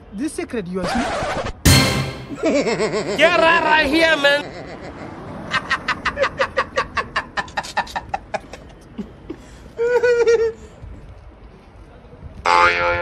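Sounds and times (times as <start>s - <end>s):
person laughing: 2.3s - 3.6s.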